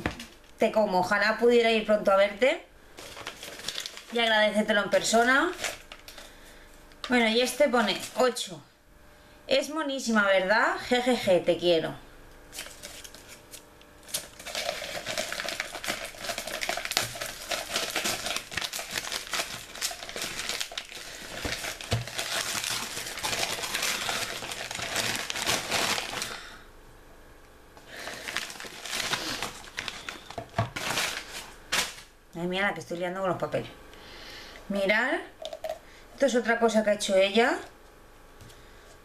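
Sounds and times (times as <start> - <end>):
paper crumpling: 3.0 - 6.4, 12.5 - 26.4, 27.9 - 32.1.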